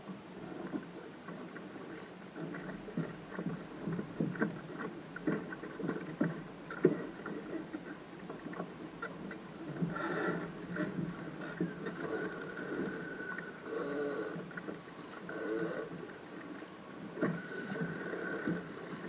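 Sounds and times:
low rush of water: 0.0s - 19.0s
waves slapping against hull: 0.0s - 19.0s
splashes and knocks: 2.4s - 12.6s.

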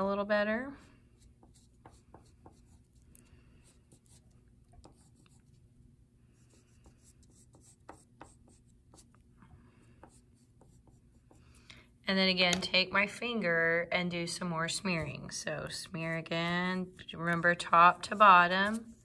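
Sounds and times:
pastel stick scratching paper: 1.2s - 5.6s, 6.4s - 9.1s, 16.2s - 19.0s.

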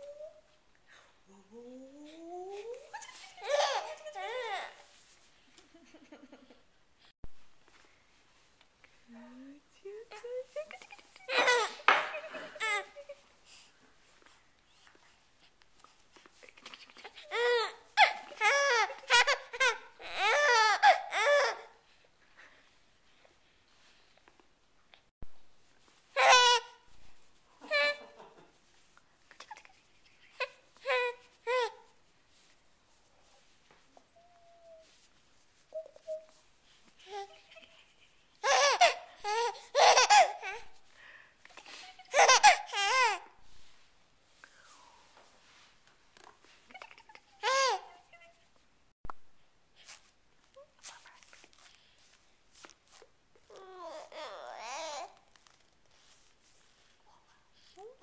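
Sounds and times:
baby squealing and cooing: 2.8s - 4.8s, 17.0s - 21.7s, 26.2s - 26.8s, 30.4s - 31.9s, 38.4s - 40.8s, 41.6s - 43.3s, 46.7s - 48.5s, 53.5s - 55.2s.

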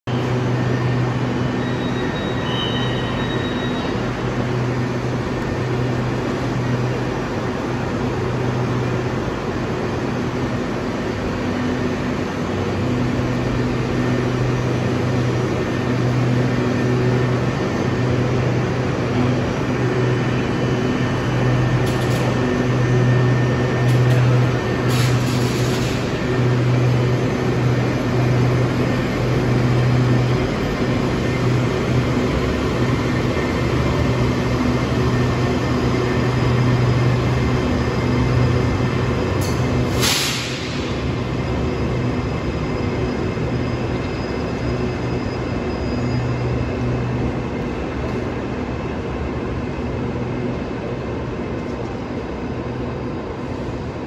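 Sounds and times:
train motor hum: 0.2s - 39.9s.

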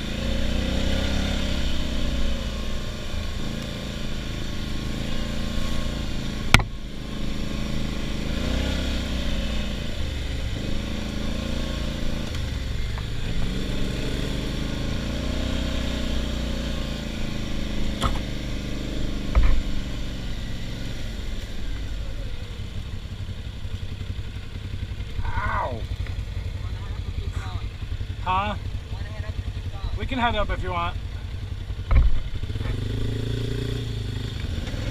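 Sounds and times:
atv engine revving: 0.0s - 34.9s
thump: 31.9s - 32.2s.

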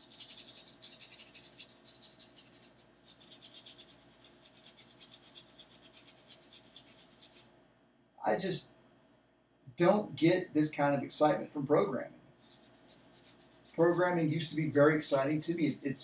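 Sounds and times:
stiff brush scrubbing circuit board: 0.0s - 7.5s, 12.4s - 16.0s.

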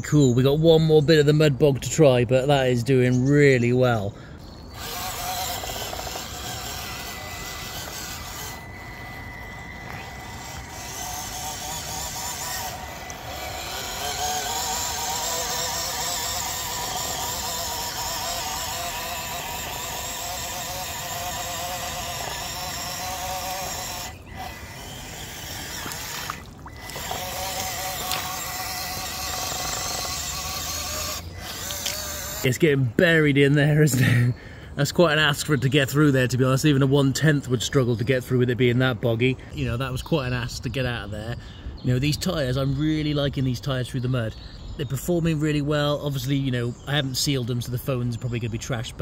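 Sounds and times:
tyres churning through mud: 3.3s - 33.2s
electric motor whining: 3.4s - 32.9s.

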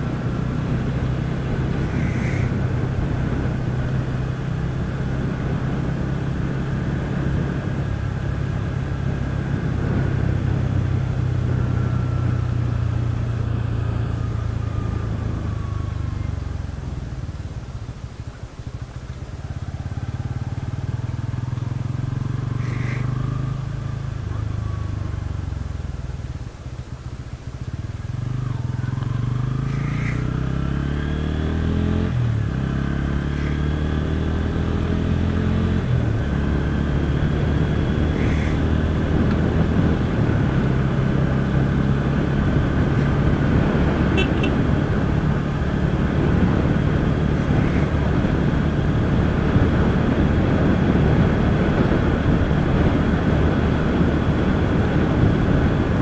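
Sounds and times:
wind rush: 0.0s - 16.5s, 33.4s - 56.0s
motorcycle engine: 0.0s - 56.0s.

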